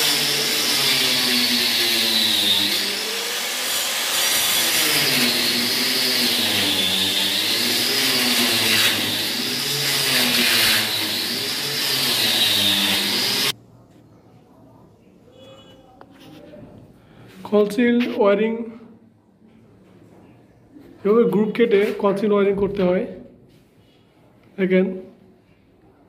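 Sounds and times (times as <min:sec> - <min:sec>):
angle grinder cutting brick: 0:00.0 - 0:13.6.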